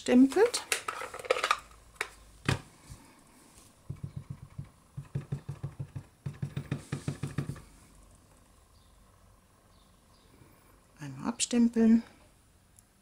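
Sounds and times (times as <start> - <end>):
stamp tapping on ink pad: 3.9 - 7.6.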